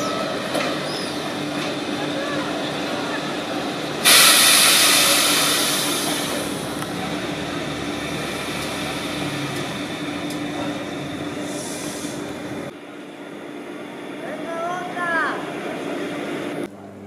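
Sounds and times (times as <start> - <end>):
electric train hum: 0.0 - 17.0
compressed air hiss: 4.0 - 6.6, 11.4 - 12.3.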